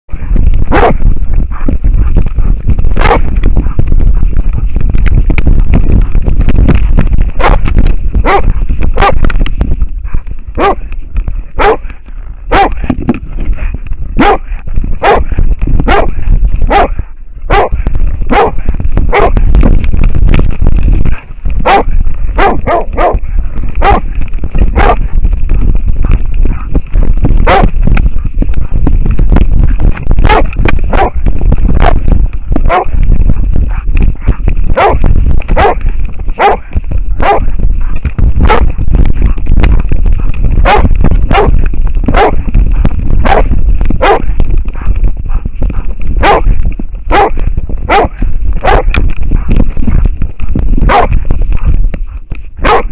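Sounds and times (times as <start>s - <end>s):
low rumble: 0.0s - 52.9s
dog barking: 0.7s - 3.8s, 7.4s - 7.6s, 8.2s - 9.2s, 10.0s - 10.9s, 11.6s - 11.9s, 12.5s - 12.9s, 13.6s - 19.4s, 21.6s - 24.1s, 24.7s - 25.0s, 26.1s - 26.7s, 27.4s - 27.7s, 30.2s - 31.2s, 31.8s - 32.0s, 32.6s - 32.9s, 33.7s - 35.0s, 35.6s - 35.8s, 36.4s - 38.8s, 40.6s - 46.5s, 47.1s - 50.0s, 50.8s - 51.7s, 52.6s - 52.9s.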